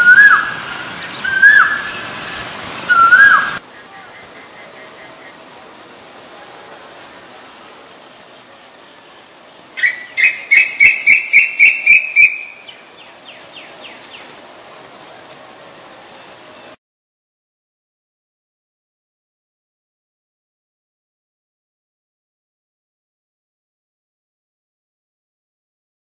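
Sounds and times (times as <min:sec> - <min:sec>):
koel calling: 0:09.8 - 0:12.7.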